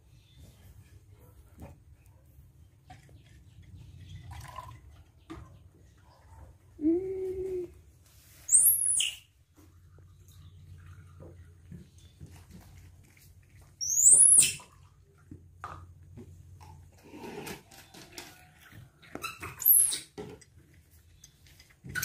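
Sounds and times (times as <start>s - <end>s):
infant monkey squealing: 8.5s - 9.2s, 13.8s - 14.6s.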